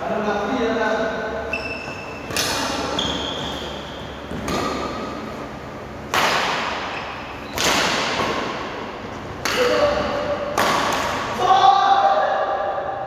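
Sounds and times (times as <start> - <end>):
racket hitting shuttlecock: 2.2 - 5.2, 6.0 - 11.4.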